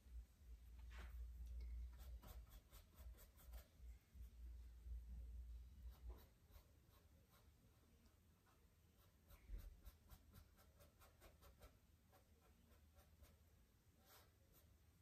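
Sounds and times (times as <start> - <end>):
paintbrush scratching on panel: 1.9 - 3.8, 5.8 - 7.6, 8.4 - 14.9.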